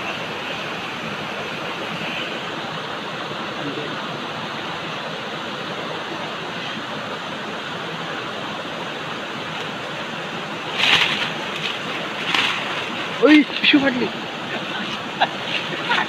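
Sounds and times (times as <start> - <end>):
river water rushing: 0.0 - 16.0
plastic sack rustling: 10.6 - 13.4.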